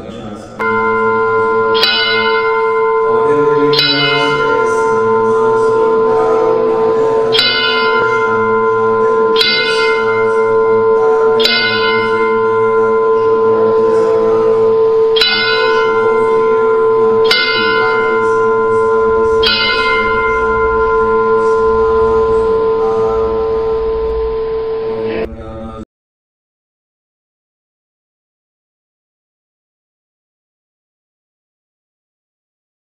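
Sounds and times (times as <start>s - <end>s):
steady ringing hum: 0.0s - 25.8s
bell strokes ringing: 0.6s - 25.3s.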